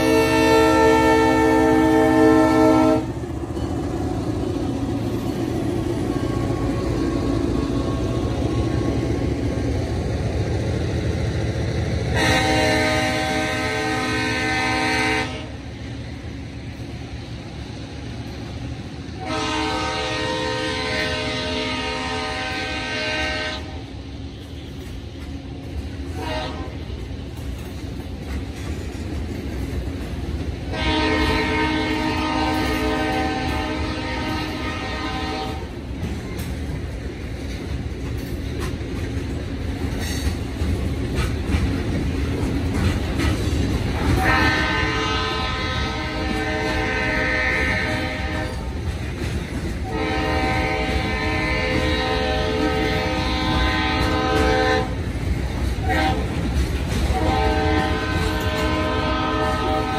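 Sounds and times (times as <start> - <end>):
locomotive air horn blasts: 0.0 - 3.2, 12.1 - 15.6, 19.2 - 23.9, 26.1 - 26.9, 30.7 - 35.8, 44.0 - 48.7, 49.8 - 55.0, 55.8 - 56.4, 57.0 - 59.9
train wheels clacking on rails: 0.0 - 59.9.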